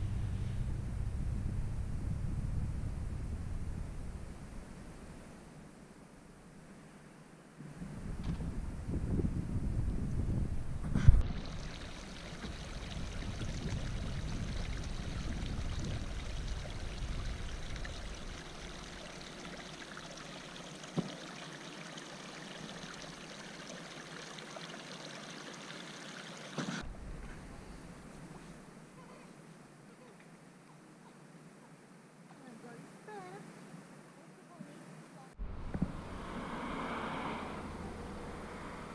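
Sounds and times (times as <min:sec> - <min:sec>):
wind rumbling on microphone: 0:00.0 - 0:05.5, 0:07.6 - 0:20.2, 0:35.4 - 0:38.9
mountain stream running: 0:11.2 - 0:26.8.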